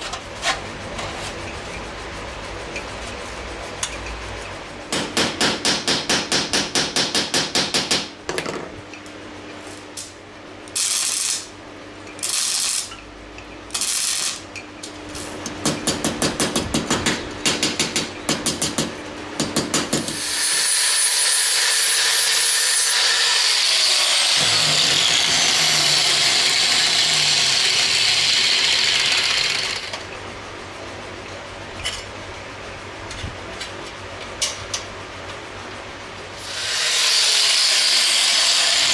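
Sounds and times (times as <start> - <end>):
power tool running: 20.0 - 30.0, 36.4 - 38.9.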